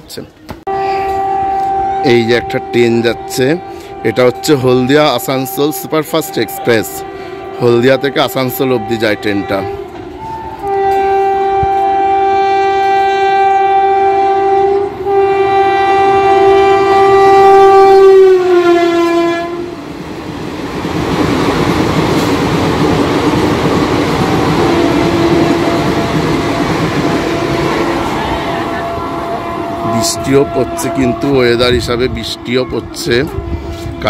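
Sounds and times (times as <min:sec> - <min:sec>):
locomotive horn blasts: 0:00.7 - 0:19.8, 0:24.3 - 0:34.0
coaches rumbling on rails: 0:00.7 - 0:34.0.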